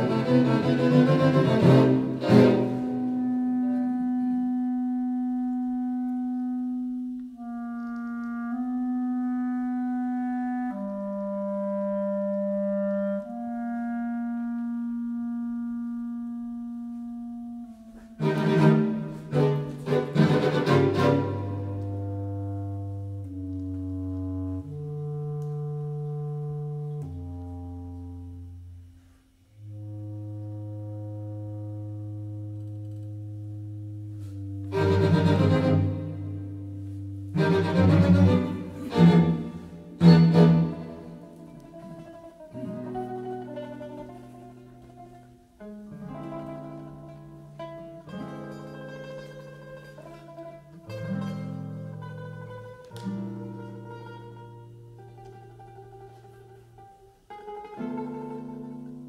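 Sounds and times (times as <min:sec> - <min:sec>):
chamber music ensemble: 0:00.0 - 0:59.0.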